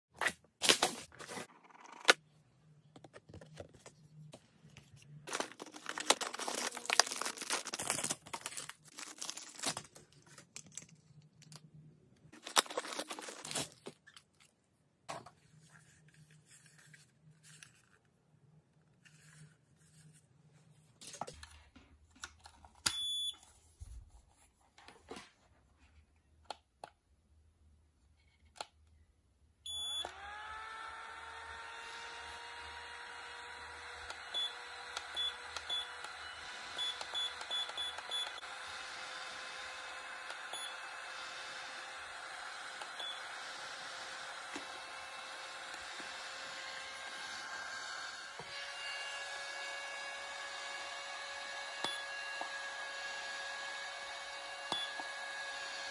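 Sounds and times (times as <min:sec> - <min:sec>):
packaging rustling and tearing: 0:05.2 - 0:11.6, 0:12.4 - 0:14.5.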